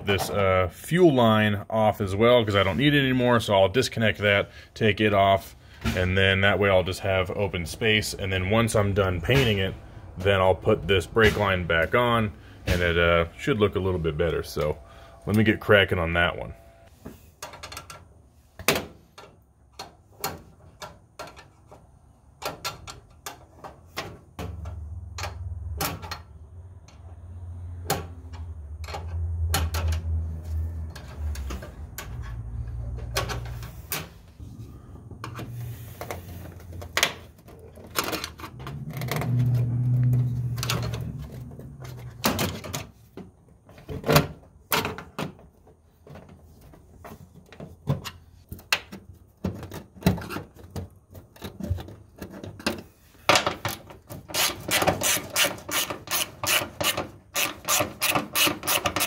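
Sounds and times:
low rumble: 38.4 - 42.3.

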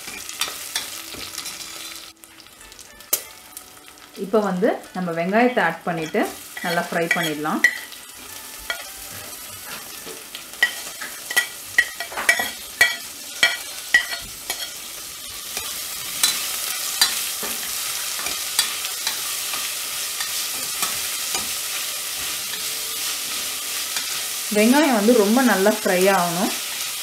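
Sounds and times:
onions sizzling in oil: 0.0 - 27.0
spoon clinking on metal pot: 6.0 - 8.0, 10.6 - 14.8.

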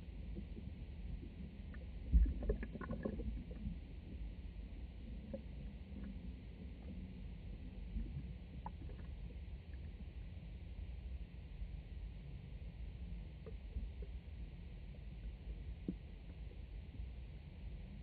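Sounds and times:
muffled water rumble: 0.0 - 18.0
faint ticks: 13.4 - 14.3, 14.9 - 17.1.

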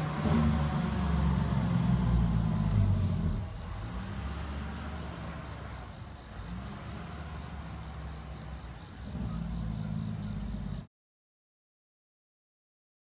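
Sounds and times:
fire engine diesel accelerating: 0.0 - 10.9.

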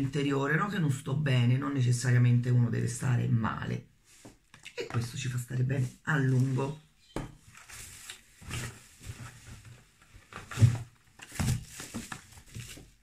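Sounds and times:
bubble wrap rustling: 7.4 - 13.0.

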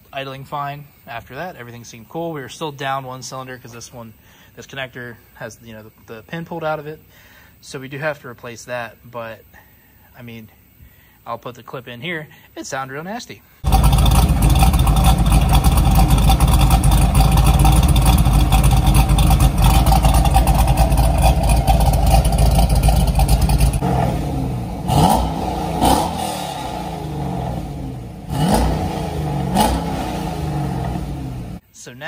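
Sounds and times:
car engine running roughly: 13.6 - 31.6
engine throttle blips: 13.6 - 31.6.

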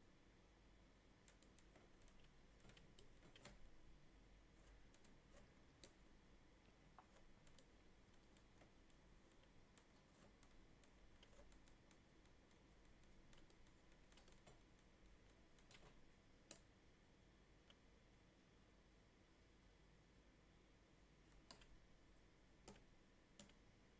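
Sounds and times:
soft clicks and taps: 1.2 - 3.8, 4.6 - 16.7, 21.3 - 21.8, 22.6 - 23.6.

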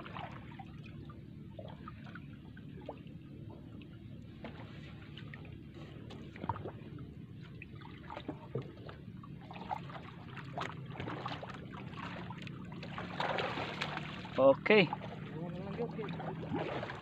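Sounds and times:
water lapping against canoe hull: 0.0 - 17.0
water drips and splashes: 6.1 - 17.0.

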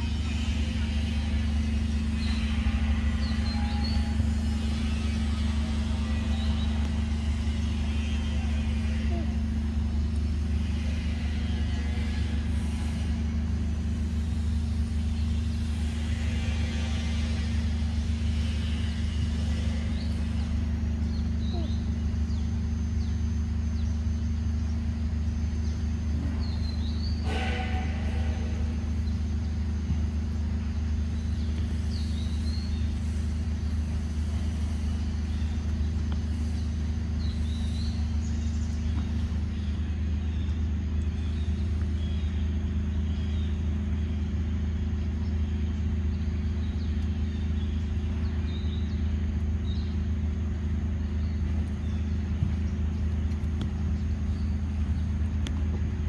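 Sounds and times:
low mechanical rumble: 0.0 - 56.0.

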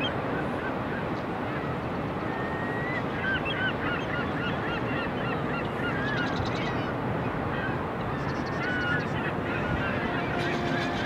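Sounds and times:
background noise: 0.0 - 11.0
flock of birds calling: 2.4 - 11.0.

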